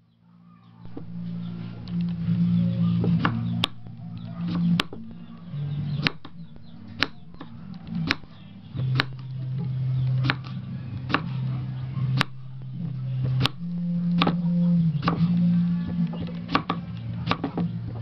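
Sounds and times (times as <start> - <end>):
blade knocking on wood: 3.1 - 11.4, 12.2 - 15.3.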